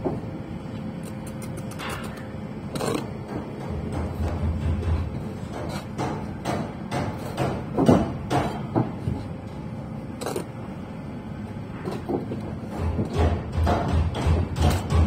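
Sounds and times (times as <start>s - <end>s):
bricks and tools knocking: 1.7s - 9.0s, 11.9s - 15.0s.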